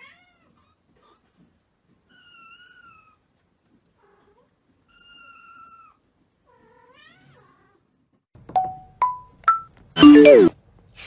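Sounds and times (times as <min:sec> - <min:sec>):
chime-like ding: 0:08.6 - 0:10.5.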